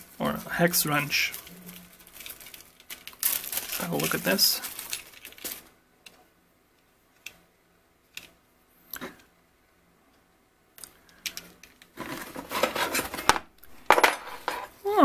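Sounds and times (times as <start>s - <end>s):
packaging rustling and scraping: 0.0s - 5.7s, 11.9s - 13.5s, 14.1s - 14.8s.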